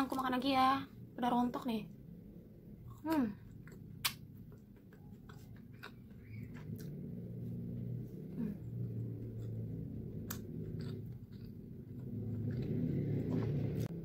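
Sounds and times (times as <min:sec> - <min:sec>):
woman chewing: 0:02.8 - 0:14.0
wet mouth clicks: 0:03.0 - 0:07.0
woman humming mmm: 0:08.3 - 0:09.0.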